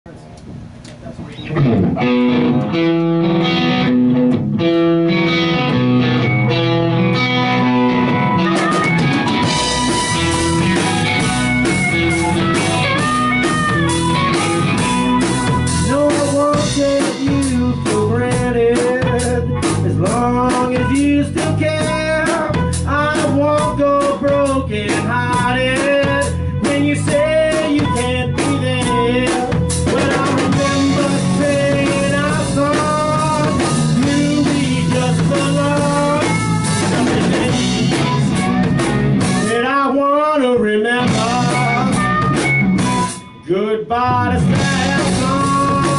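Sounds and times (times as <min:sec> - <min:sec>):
bass guitar: 0:00.1 - 0:45.9
electric guitar riff: 0:01.4 - 0:40.0, 0:40.6 - 0:45.9
harmonica wailing: 0:05.2 - 0:16.5, 0:27.1 - 0:39.8, 0:41.2 - 0:43.5
drum kit with cymbals: 0:08.0 - 0:39.6, 0:41.0 - 0:43.3, 0:44.4 - 0:45.9.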